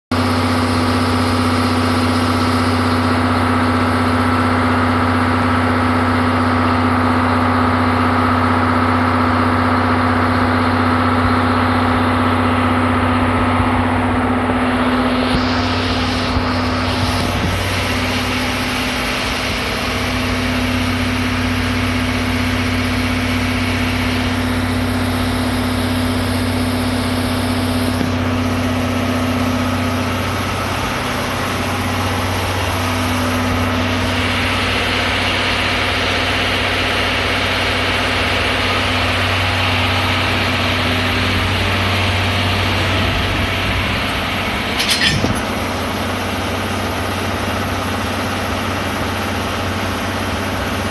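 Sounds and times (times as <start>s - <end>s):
diesel locomotive engine humming: 0.1s - 50.9s
sharp clatter: 42.8s - 46.2s.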